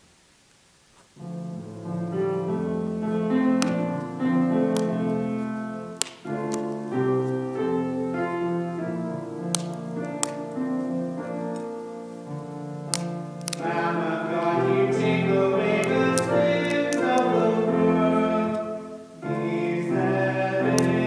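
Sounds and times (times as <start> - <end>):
keyboard playing slow chords: 1.2 - 21.0
sharp clicks: 3.3 - 7.4, 9.4 - 10.6, 12.9 - 17.4, 20.6 - 21.0.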